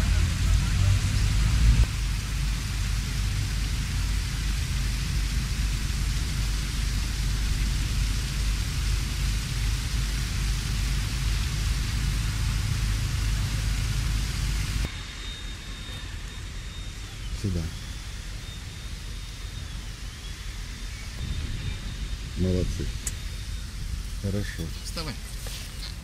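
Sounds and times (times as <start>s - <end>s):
wind noise on microphone: 18.2s - 26.0s.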